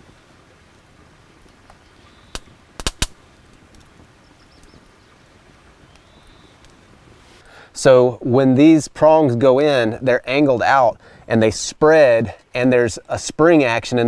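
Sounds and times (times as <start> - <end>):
wood popping in fire: 0.0 - 7.6
campfire coals hissing: 0.0 - 14.0.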